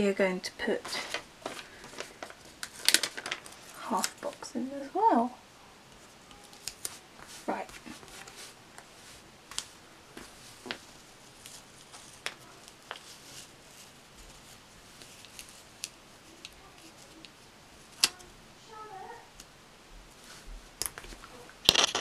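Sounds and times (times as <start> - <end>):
paper rustling: 0.7 - 4.5, 5.9 - 18.3, 21.0 - 22.0.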